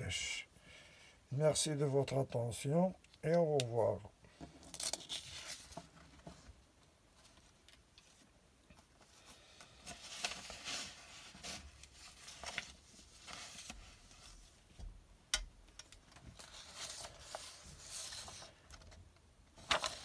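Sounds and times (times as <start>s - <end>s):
paper rustling on a table: 9.8s - 14.5s, 16.4s - 18.9s, 19.6s - 20.0s.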